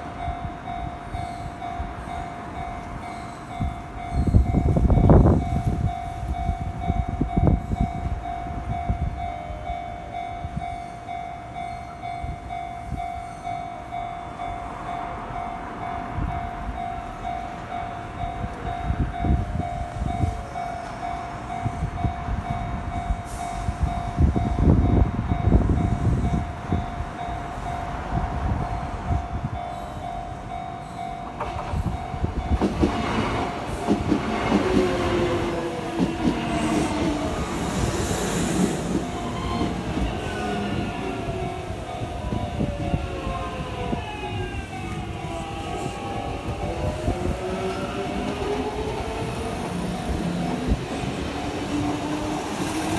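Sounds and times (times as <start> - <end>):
electric train passing: 0.0 - 52.9
train wheels squealing: 1.1 - 2.2, 3.0 - 5.6, 34.5 - 52.9.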